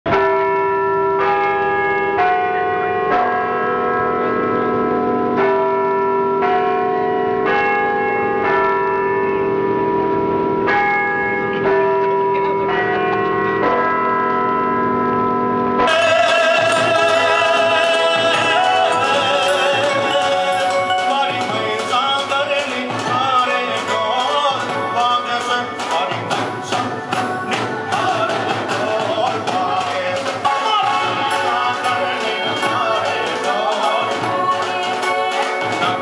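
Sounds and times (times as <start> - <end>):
bell-like tune: 0.1 - 36.0
live dance music with singing: 15.9 - 36.0.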